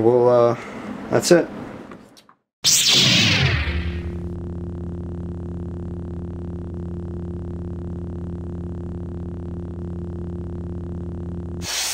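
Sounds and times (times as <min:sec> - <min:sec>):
low synthesizer drone: 0:02.6 - 0:11.6.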